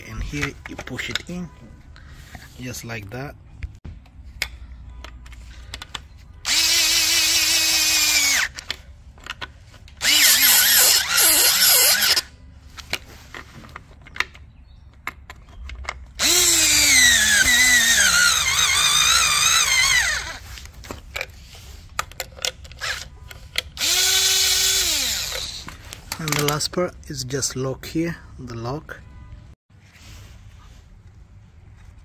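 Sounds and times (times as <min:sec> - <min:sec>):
power drill motor whine: 0:06.4 - 0:08.6, 0:10.0 - 0:12.3, 0:16.2 - 0:20.4, 0:23.8 - 0:25.7.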